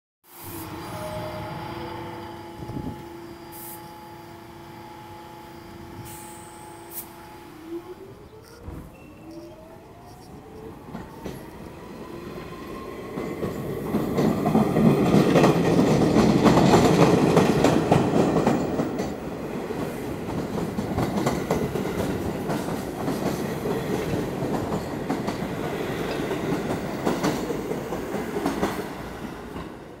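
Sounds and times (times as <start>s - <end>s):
traction motors whining: 0.4s - 16.4s.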